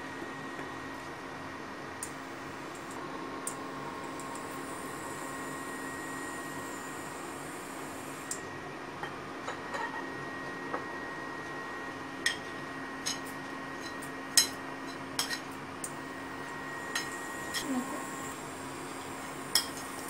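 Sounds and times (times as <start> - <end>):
cooktop humming: 0.0 - 20.0.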